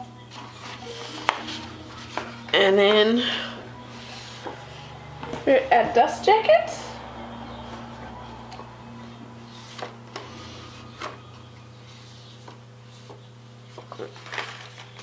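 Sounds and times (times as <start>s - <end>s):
steady low hum: 0.0s - 13.8s
hands handling a book: 11.9s - 15.0s.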